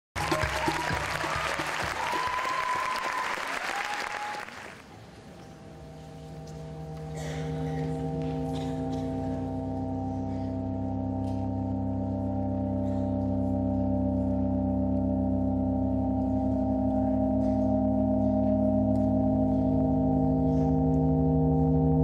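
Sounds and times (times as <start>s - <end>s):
audience applause: 0.2s - 5.0s
low droning music chord: 5.3s - 22.0s.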